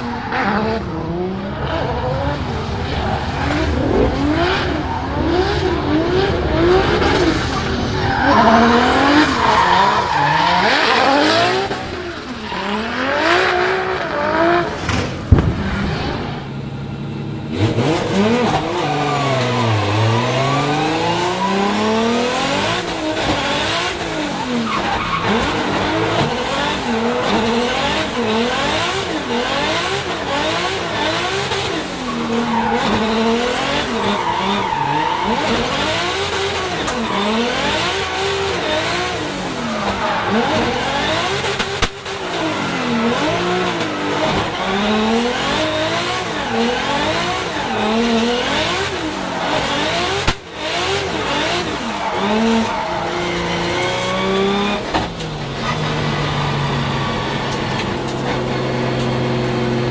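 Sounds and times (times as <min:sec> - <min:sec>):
car engine revving: 0:00.0 - 0:59.9
sharp crack: 0:14.7 - 0:16.5.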